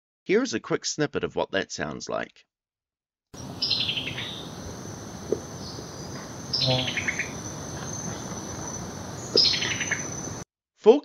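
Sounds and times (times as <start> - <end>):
bird calling clipped notes: 3.5 - 4.6, 5.2 - 10.4
high-pitched drone: 5.6 - 8.2.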